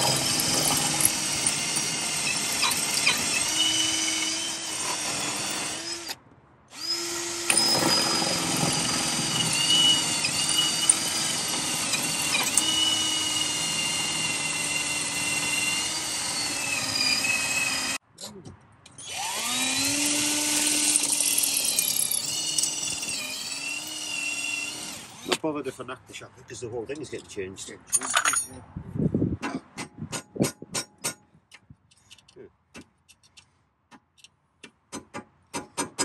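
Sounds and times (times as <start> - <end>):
power drill boring through steel: 0.0 - 18.0, 19.0 - 25.4.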